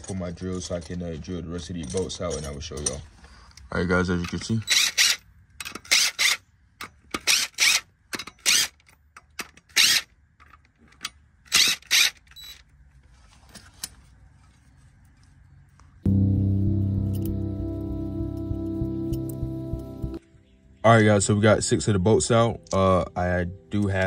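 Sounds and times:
cordless drill bursts: 9.7 - 10.0, 11.5 - 12.2
background music: 16.1 - 24.0.

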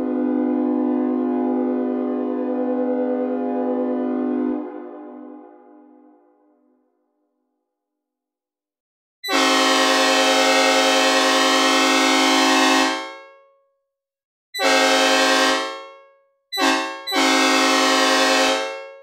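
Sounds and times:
locomotive air horn blasts: 0.0 - 5.8, 9.2 - 13.4, 14.6 - 16.0, 16.6 - 19.0.

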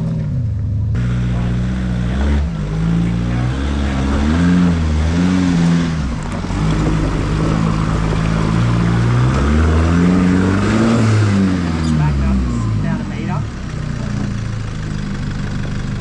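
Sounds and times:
off-road engine revving: 0.0 - 16.0.

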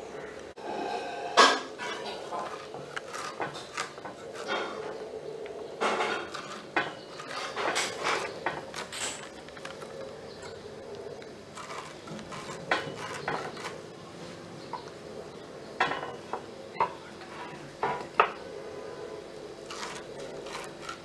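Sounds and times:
blade slicing food: 1.8 - 5.0, 11.2 - 14.0, 19.6 - 21.0.

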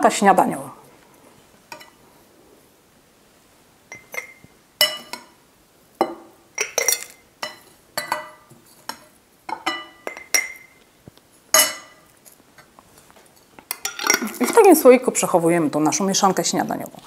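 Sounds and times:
metal spoon clinking on glass: 3.9 - 5.4, 6.0 - 10.8, 11.5 - 12.1.

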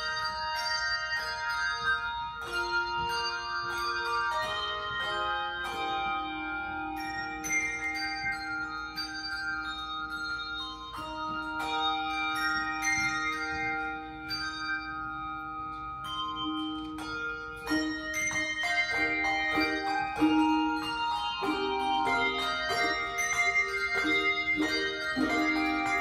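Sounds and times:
handbell choir ringing: 0.0 - 26.0.

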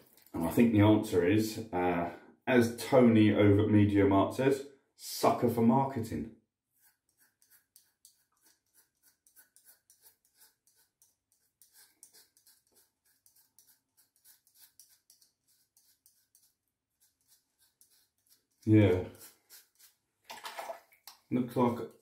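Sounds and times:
razor rasping through stubble: 6.7 - 20.1.

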